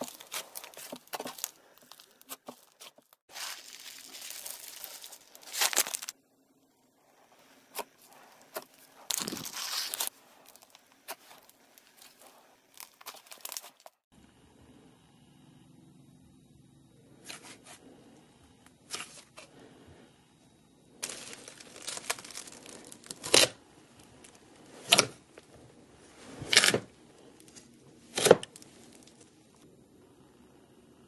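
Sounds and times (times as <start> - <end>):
slime squelching: 0.0 - 6.2, 7.1 - 14.0, 21.0 - 25.2.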